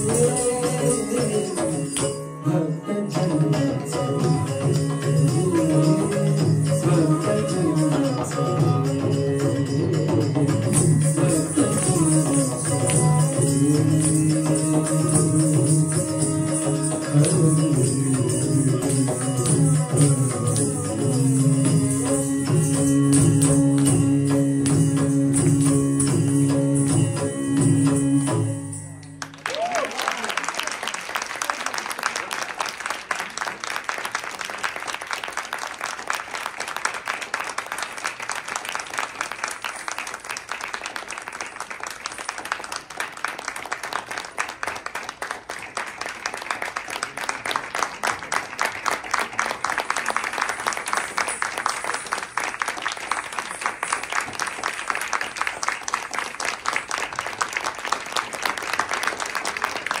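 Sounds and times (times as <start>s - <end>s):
audience applauding: 29.1s - 60.0s.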